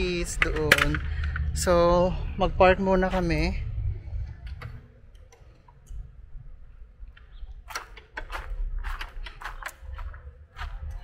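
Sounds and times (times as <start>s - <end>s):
low rumble: 0.0s - 5.0s.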